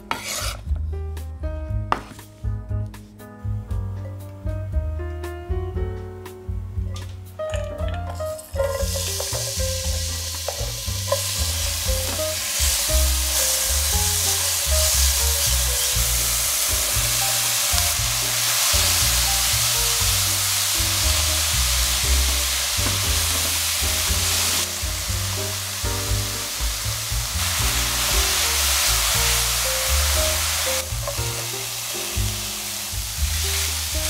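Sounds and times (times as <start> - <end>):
spatula stirring in pan: 0.1 - 0.6
vegetables sizzling in oil: 8.5 - 34.0.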